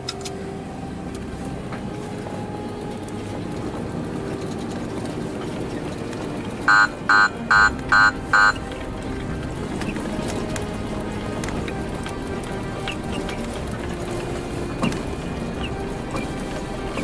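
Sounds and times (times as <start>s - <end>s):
vehicle engine and road noise: 0.0s - 17.0s
short loud beeps: 6.7s - 8.6s.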